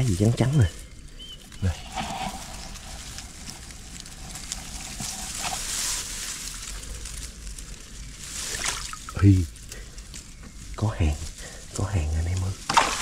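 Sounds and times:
water splashing and sloshing: 8.2 - 9.2, 12.6 - 13.0.

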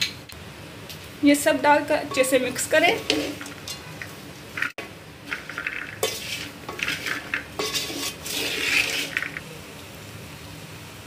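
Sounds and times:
wooden spoon scraping a metal pot: 2.1 - 3.9, 4.6 - 9.4.

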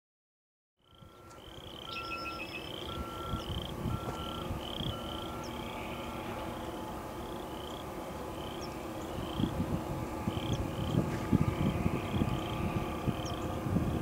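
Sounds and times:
high pulsing tone: 0.8 - 7.0
low rumble: 1.0 - 14.0.

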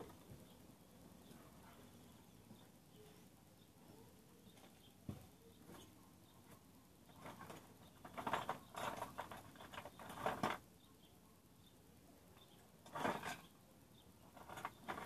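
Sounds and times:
small metal parts rattling: 7.1 - 10.7, 12.4 - 13.6, 14.2 - 15.0.

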